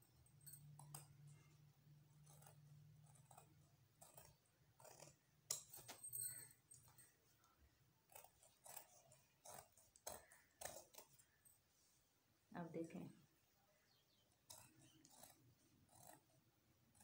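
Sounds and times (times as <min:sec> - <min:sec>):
scissors snipping fabric: 0:00.0 - 0:06.1, 0:08.0 - 0:11.4, 0:14.4 - 0:17.0.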